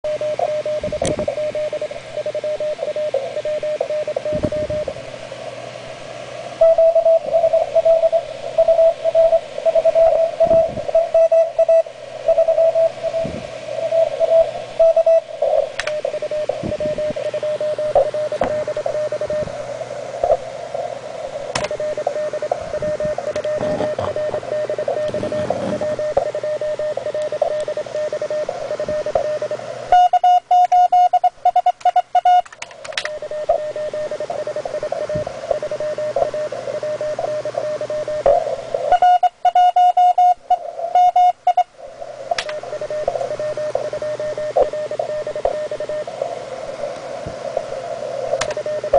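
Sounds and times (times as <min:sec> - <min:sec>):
morse code tone: 0:06.6 - 0:19.6, 0:21.6 - 0:41.7, 0:42.4 - 0:46.1, 0:48.2 - 0:48.9
radio band hiss: 0:11.9 - 0:29.9, 0:32.8 - 0:39.1, 0:40.2 - 0:48.9.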